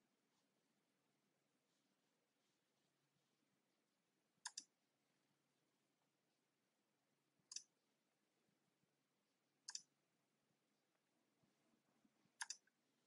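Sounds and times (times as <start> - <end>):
computer mouse clicks: 4.4 - 4.7, 7.5 - 7.7, 9.6 - 9.9, 12.4 - 12.8.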